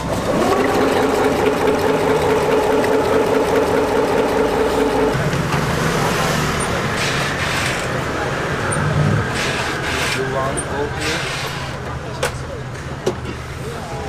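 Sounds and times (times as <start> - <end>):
stand mixer motor whisking: 0.0 - 5.2.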